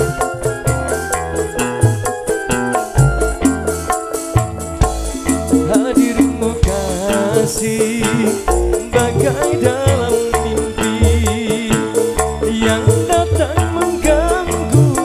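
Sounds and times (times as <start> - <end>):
drums: 0.0 - 15.0
electric keyboards: 0.0 - 15.0
fast rattling percussion: 0.0 - 15.0
pulsing bass: 0.0 - 15.0
man singing: 5.5 - 15.0.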